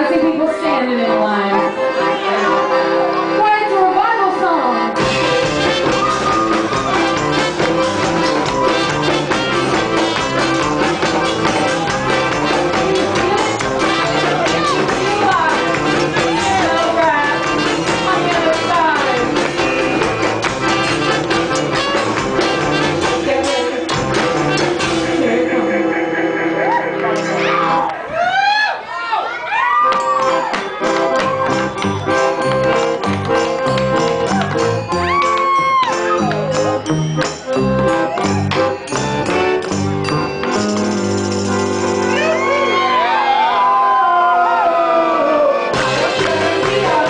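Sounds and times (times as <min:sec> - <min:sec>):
accordion: 0:00.0 - 0:27.8, 0:30.1 - 0:43.3, 0:44.6 - 0:47.0
live band music: 0:00.0 - 0:28.1, 0:29.8 - 0:47.0
electric guitar: 0:04.7 - 0:28.0
voices whooping and shouting: 0:05.8 - 0:07.2, 0:27.4 - 0:31.5, 0:34.9 - 0:36.6, 0:42.1 - 0:45.6.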